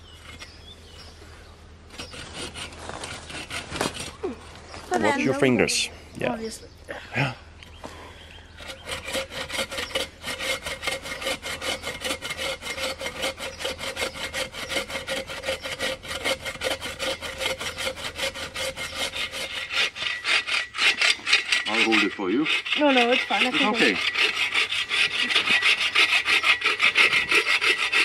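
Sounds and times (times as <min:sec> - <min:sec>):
bow saw cutting log: 0:01.9 - 0:04.2, 0:08.5 - 0:28.0.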